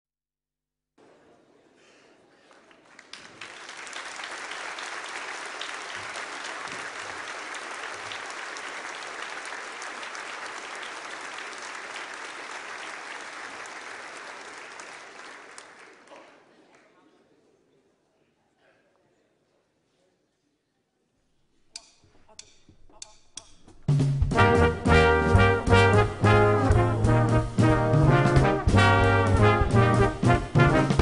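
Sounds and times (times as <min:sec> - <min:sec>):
audience applauding: 0:02.4 - 0:17.0.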